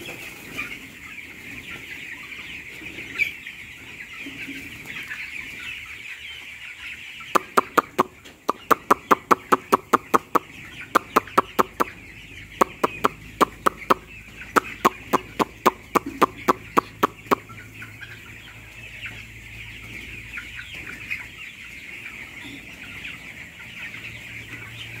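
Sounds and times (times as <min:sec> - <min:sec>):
chicks peeping: 0:00.0 - 0:25.0
person making mouth clicks: 0:07.4 - 0:11.9, 0:12.6 - 0:17.4.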